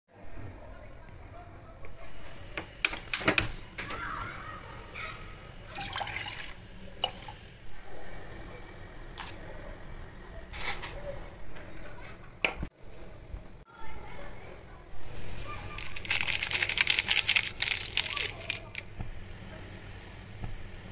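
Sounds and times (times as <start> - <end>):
liquid splashing in saucepan: 5.7 - 7.4.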